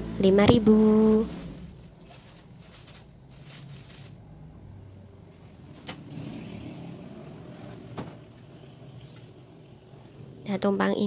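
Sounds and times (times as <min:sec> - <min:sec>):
low steady rumble: 0:00.0 - 0:05.8
plastic bags rustling: 0:00.4 - 0:04.5.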